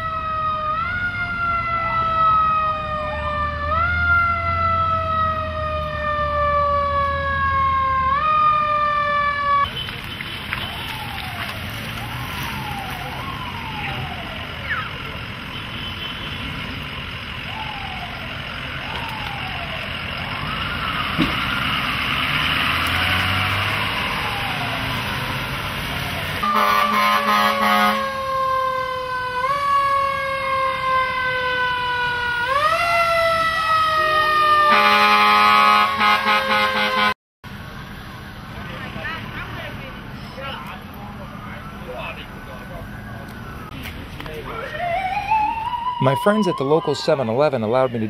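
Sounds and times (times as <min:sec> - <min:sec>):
siren sweeping down: 0:00.0 - 0:09.7, 0:10.6 - 0:15.3, 0:17.3 - 0:37.2, 0:40.2 - 0:47.8
fire truck siren winding: 0:17.4 - 0:21.0, 0:26.0 - 0:37.1, 0:44.6 - 0:47.4
air horn blasts: 0:26.4 - 0:28.2, 0:34.6 - 0:37.2.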